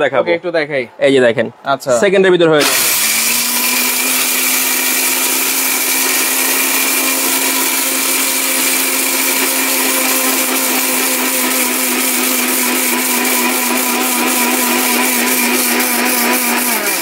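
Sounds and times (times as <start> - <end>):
blender motor grinding spices: 2.6 - 17.0.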